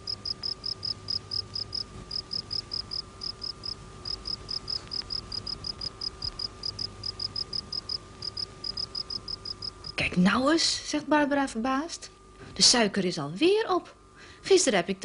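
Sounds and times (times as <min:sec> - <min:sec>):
cricket chirping: 0:00.0 - 0:10.0
faint steady hum: 0:00.0 - 0:15.0.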